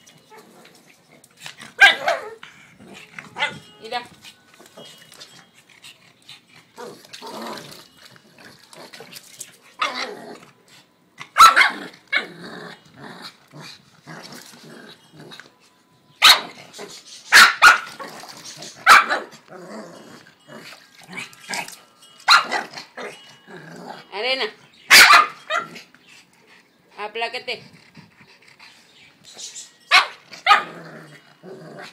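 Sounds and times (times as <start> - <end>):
small dog barking: 1.8 - 2.3, 11.4 - 11.8, 16.2 - 16.5, 17.3 - 17.9, 18.8 - 19.3, 24.9 - 25.7, 29.9 - 30.7
small dog growling: 19.5 - 21.7, 30.6 - 31.9.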